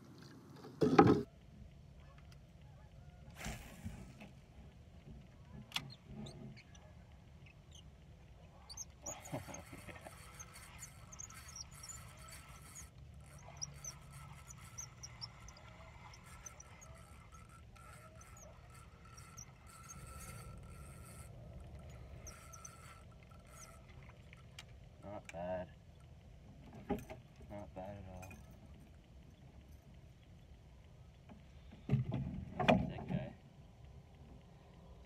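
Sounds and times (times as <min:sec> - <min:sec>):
small birds chirping: 0:05.6 - 0:20.9.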